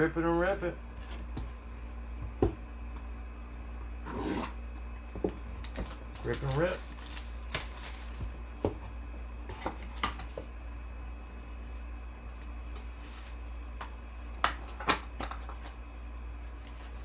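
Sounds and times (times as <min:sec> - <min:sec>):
steady low hum: 0:00.0 - 0:17.0
plastic wrap crinkling: 0:05.6 - 0:08.6.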